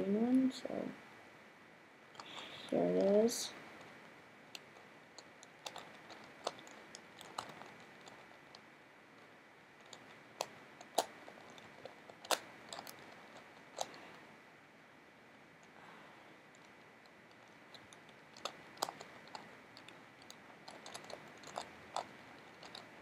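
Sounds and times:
plastic puzzle clicks: 4.5 - 8.6, 9.8 - 14.1, 16.6 - 23.0.

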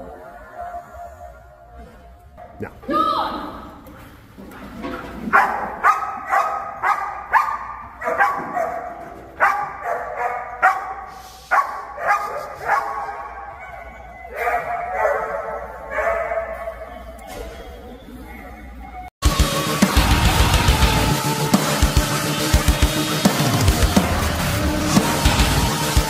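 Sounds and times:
dog barking sharply: 5.3 - 13.3.

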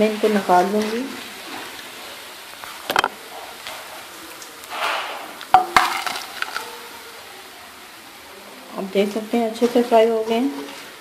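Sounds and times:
oil sizzling: 0.0 - 8.2.

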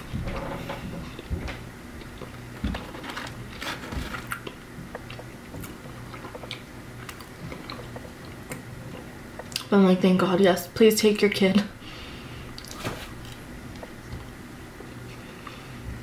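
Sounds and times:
person chewing fries: 0.7 - 9.7, 12.6 - 15.6.

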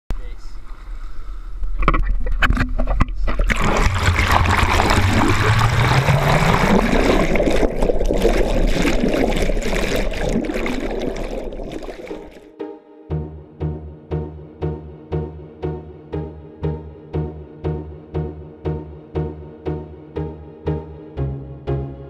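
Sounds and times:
underwater rushing water and bubbles: 1.8 - 12.5.

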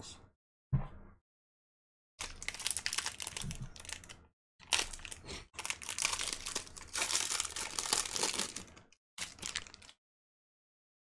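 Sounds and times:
foil wrapper crinkling and tearing: 2.2 - 10.0.

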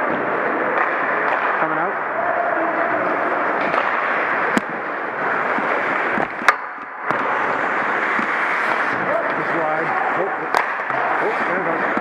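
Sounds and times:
stick cracking puck: 0.7 - 1.6, 3.6 - 9.8, 10.4 - 12.0
skates scraping on ice: 2.2 - 12.0.

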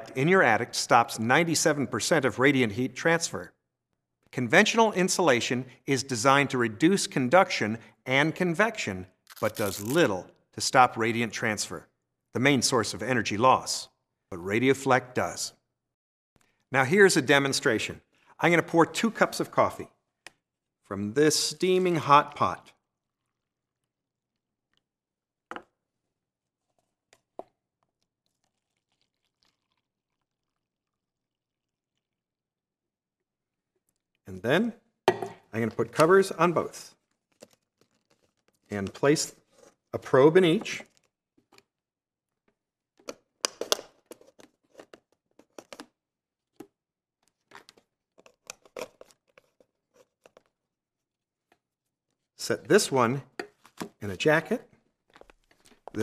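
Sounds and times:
coffee splashing into cups: 27.0 - 32.0
crinkly rustles: 36.9 - 39.9.

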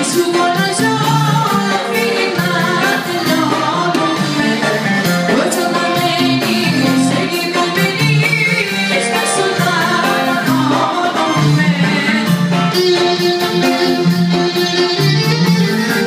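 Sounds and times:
live band music: 0.0 - 16.0
woman singing into microphone: 0.0 - 16.0
steady drum beat: 0.1 - 16.0.

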